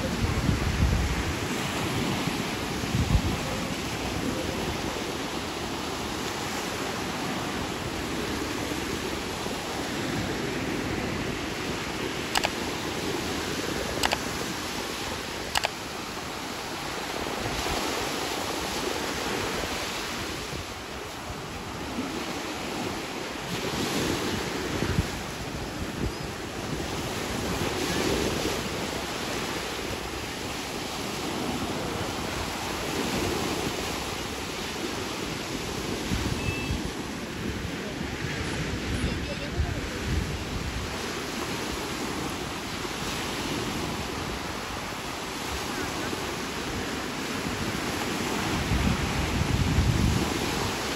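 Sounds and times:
waves washing onto beach: 0.0 - 50.9
wind on microphone: 0.0 - 50.9
sharp clicks: 12.3 - 12.6, 14.0 - 14.3, 15.5 - 15.8.

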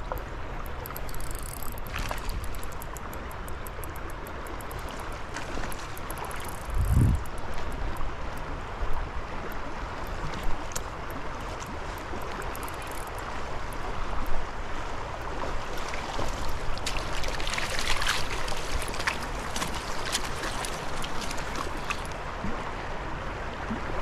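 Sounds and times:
creek water running: 0.0 - 24.0
small splashes: 1.6 - 3.0, 4.8 - 7.7, 15.7 - 22.5.

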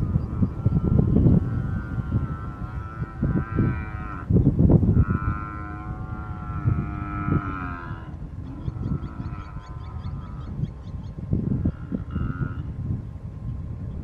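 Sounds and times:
buffalo bellowing in distress: 0.0 - 4.3, 4.9 - 10.4, 11.6 - 12.7.

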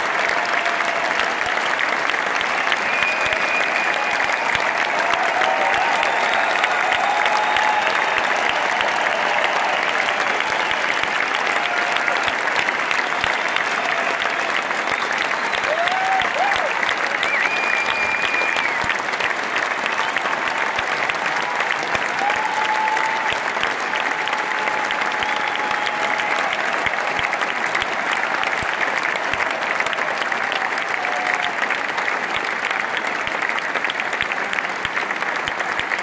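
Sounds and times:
audience clapping and cheering: 0.0 - 36.0.

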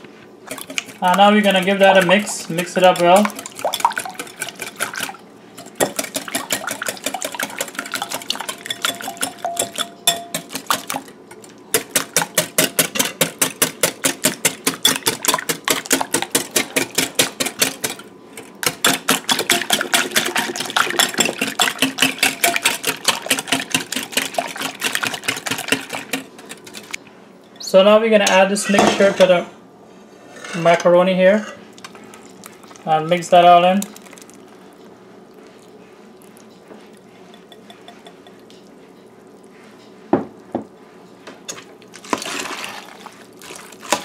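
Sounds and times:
whisk clicking against glass bowl: 5.7 - 11.0, 18.7 - 26.9.

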